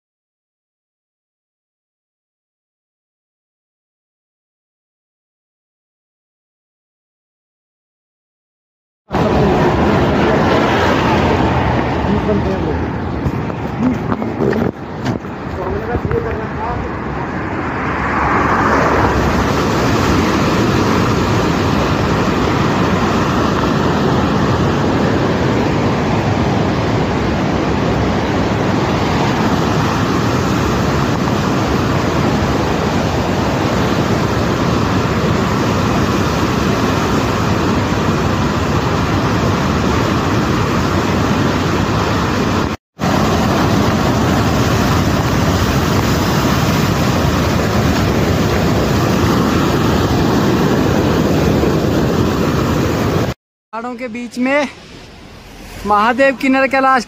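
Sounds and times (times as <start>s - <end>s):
river rushing over rocks: 18.1s - 57.0s.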